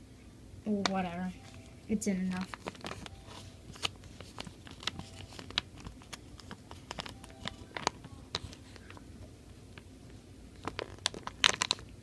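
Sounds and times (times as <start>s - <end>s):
plastic sleeve clicking and crinkling: 2.3s - 9.0s, 10.6s - 12.0s.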